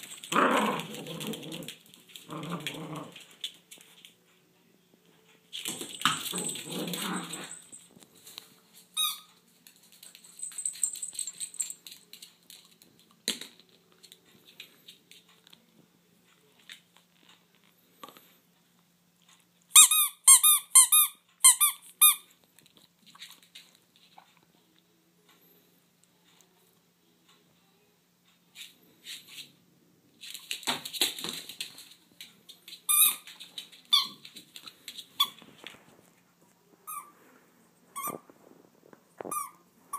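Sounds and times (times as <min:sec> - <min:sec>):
rubber squeaky toy squeaking: 0:09.0 - 0:09.3, 0:19.8 - 0:22.3, 0:33.9 - 0:34.2, 0:38.0 - 0:38.2, 0:39.3 - 0:39.6.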